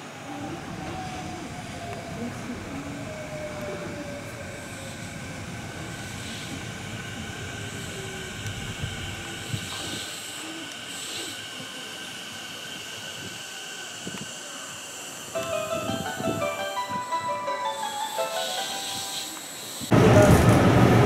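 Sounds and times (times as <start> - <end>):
train wheels rumbling on rails: 0.0 - 16.7, 19.1 - 21.0
electric train motor whine: 0.2 - 21.0
electric train braking: 12.0 - 21.0
steady high-pitched tones: 15.2 - 19.9
high-pitched brake squeal: 17.7 - 19.9.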